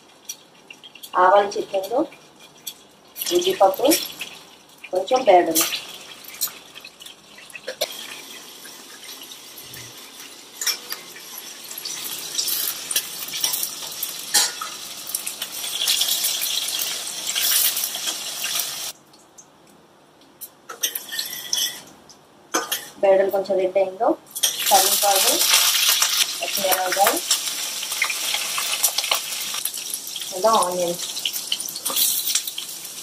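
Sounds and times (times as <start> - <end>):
seeds sizzling in hot oil: 2.5 - 19.0, 24.3 - 33.0.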